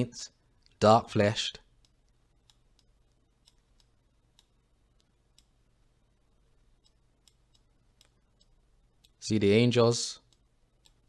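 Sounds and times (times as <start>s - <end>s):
faint computer mouse clicks: 1.8s - 5.6s, 6.8s - 9.2s, 10.2s - 11.0s.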